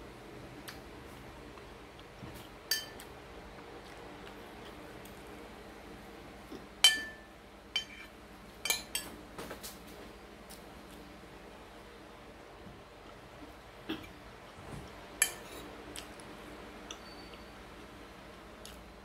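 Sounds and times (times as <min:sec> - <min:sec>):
metal spoon clinking on ceramic plate: 0:02.7 - 0:03.0, 0:06.8 - 0:09.1.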